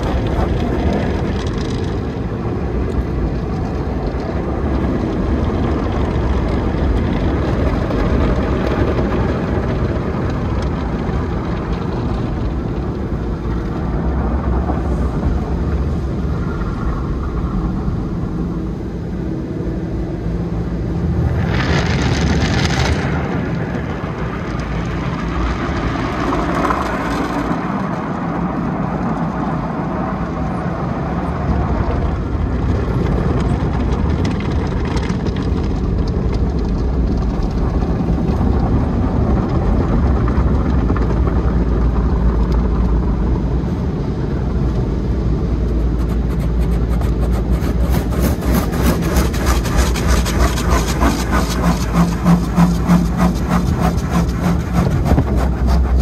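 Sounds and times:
car wash machinery rumble: 0:00.0 - 0:56.0
brushes on windshield: 0:45.4 - 0:56.0.

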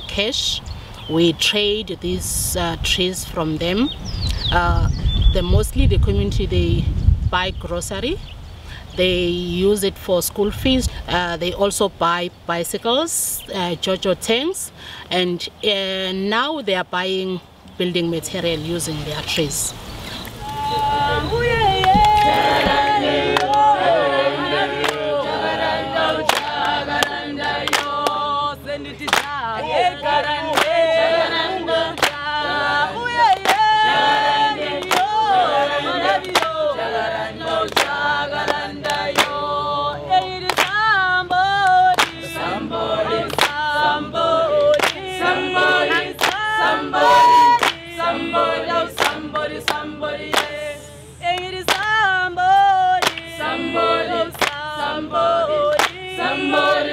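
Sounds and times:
group of voices singing: 0:18.8 - 0:56.9.

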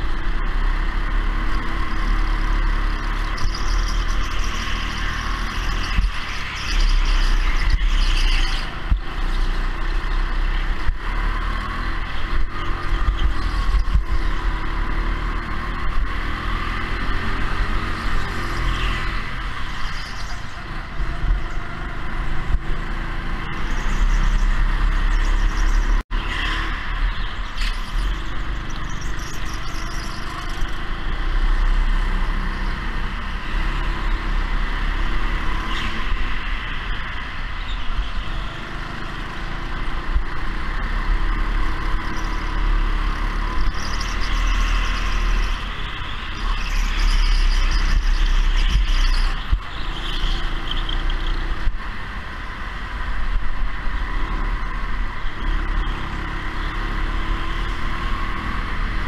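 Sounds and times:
go-kart motor: 0:00.0 - 0:59.0.

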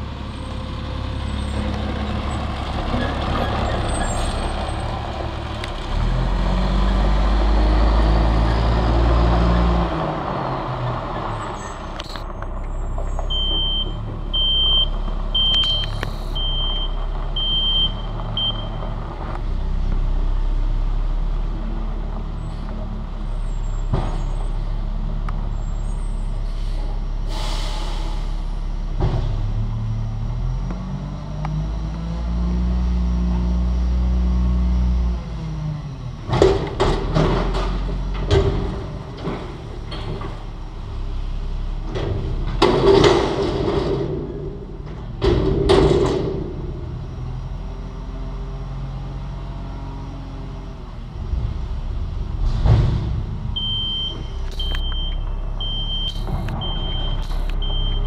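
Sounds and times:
garbage truck diesel engine revving: 0:00.0 - 0:15.6, 0:27.6 - 0:58.0
reversing beeper beeping: 0:13.3 - 0:18.8, 0:53.5 - 0:58.0
heavy metal bangs and clatter: 0:41.9 - 0:46.8, 0:51.1 - 0:54.6.

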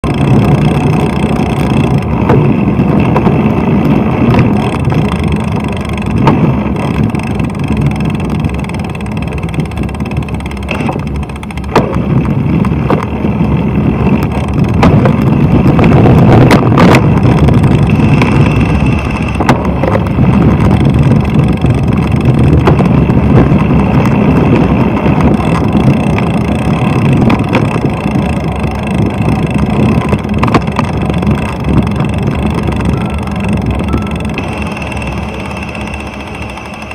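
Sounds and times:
car engines: 0:00.0 - 0:36.9
wind and road noise: 0:00.0 - 0:36.9
sharp knocks: 0:09.4 - 0:13.1, 0:14.6 - 0:15.3.

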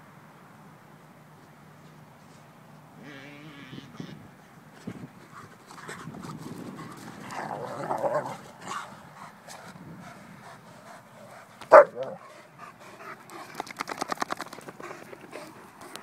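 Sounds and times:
dogs panting: 0:04.8 - 0:16.0.

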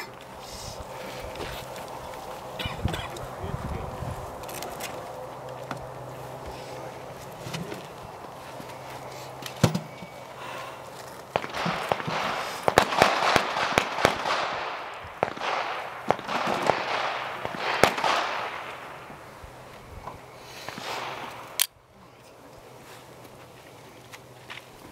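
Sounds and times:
pistol shots with echo: 0:11.3 - 0:19.2, 0:20.7 - 0:21.7.

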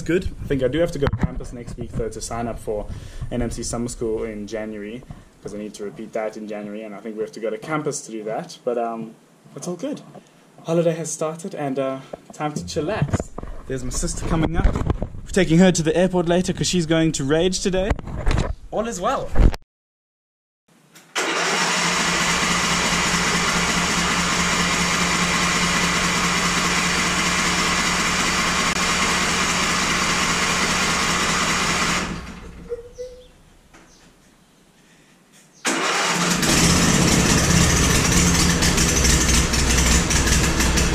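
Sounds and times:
riding lawn mower engine: 0:21.2 - 0:32.6, 0:35.7 - 0:40.9.

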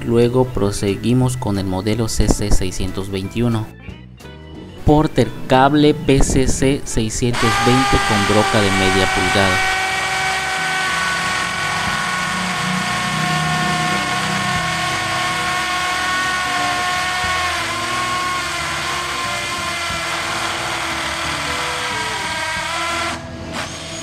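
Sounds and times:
hammer drill boring into concrete: 0:07.3 - 0:24.0.

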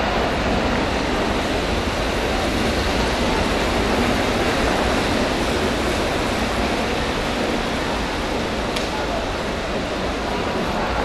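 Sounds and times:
steady rushing noise: 0:00.0 - 0:11.0.

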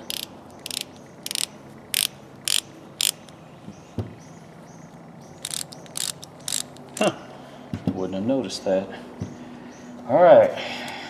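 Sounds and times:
ratchet wrench clicking: 0:00.0 - 0:03.3, 0:05.4 - 0:07.1.

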